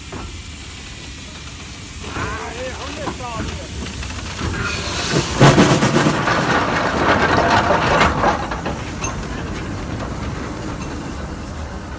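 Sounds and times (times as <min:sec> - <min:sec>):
steam hissing: 0:00.0 - 0:07.4
train wheels clattering on rails: 0:00.0 - 0:11.9.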